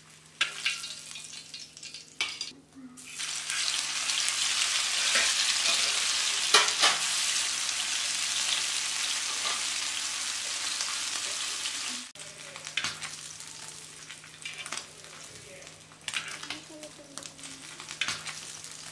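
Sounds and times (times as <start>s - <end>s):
fish sizzling in hot oil: 0.0s - 18.9s
scattered crackles: 12.2s - 18.9s.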